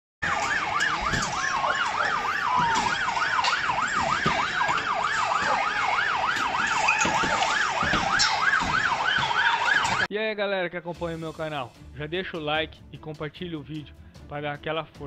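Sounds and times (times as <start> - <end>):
police siren yelp: 0.2 - 10.1
sharp knocks: 2.5 - 10.1.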